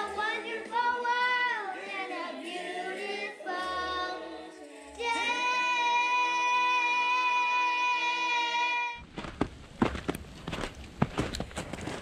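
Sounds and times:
girls singing: 0.0s - 9.0s
short scuffing noises: 9.0s - 12.0s.

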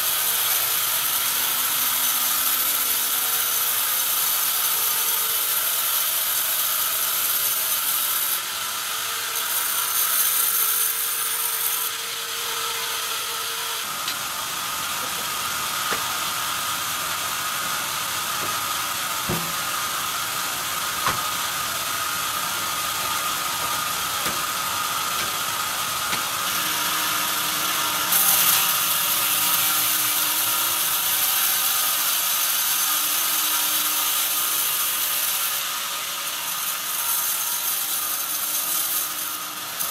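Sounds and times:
band saw cutting log: 0.0s - 39.9s
sharp knocks: 19.2s - 19.7s, 21.0s - 21.3s.

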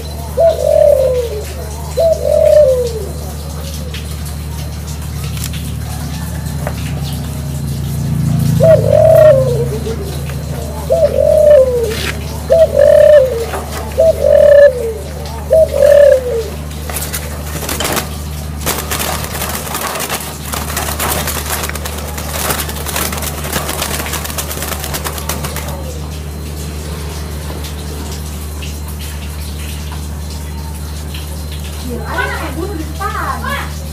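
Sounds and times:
dove cooing: 0.0s - 4.8s, 8.1s - 26.4s.

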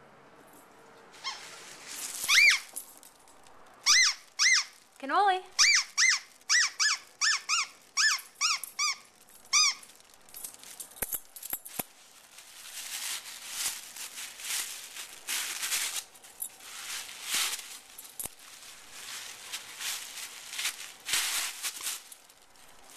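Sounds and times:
dog toy rustling: 1.1s - 22.9s
squeaky toy squeaking: 1.2s - 1.6s, 2.2s - 2.8s, 3.8s - 4.8s, 5.6s - 9.9s.

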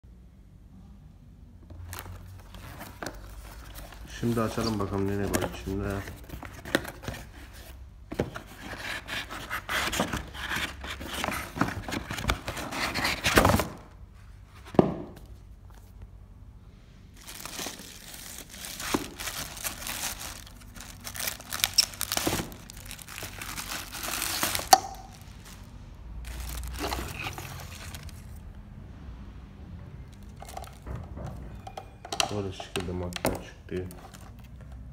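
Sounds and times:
plastic bags crinkling: 17.2s - 28.4s, 30.1s - 31.0s.

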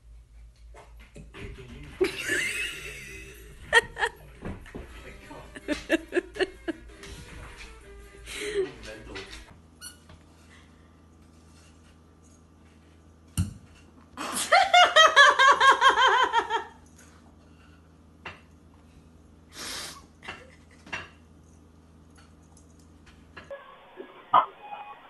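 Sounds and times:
person laughing hard: 2.0s - 4.2s, 5.4s - 6.9s.

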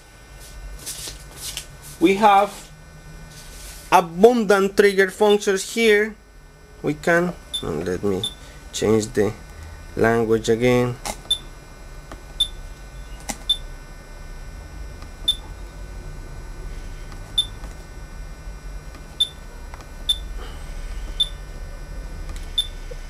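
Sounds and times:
low hum: 0.0s - 23.0s
short high key beeps: 7.5s - 8.4s, 21.2s - 21.4s, 22.6s - 22.8s.

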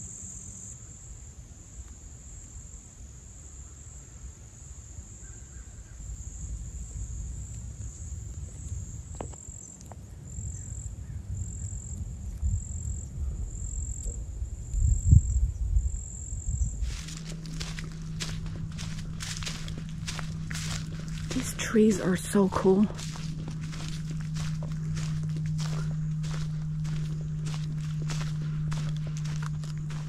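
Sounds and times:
insects trilling: 0.0s - 30.0s
low rumble on microphone: 6.0s - 30.0s.

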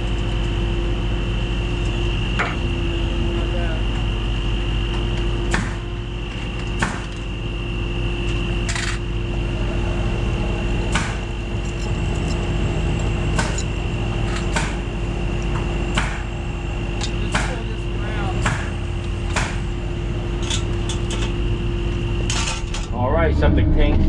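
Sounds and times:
truck engine running under load: 0.0s - 24.0s
metal chains clanking: 11.5s - 14.5s.

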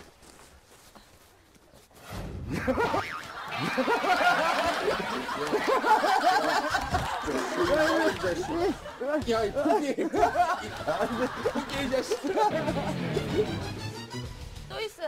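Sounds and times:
people laughing: 2.5s - 14.0s.

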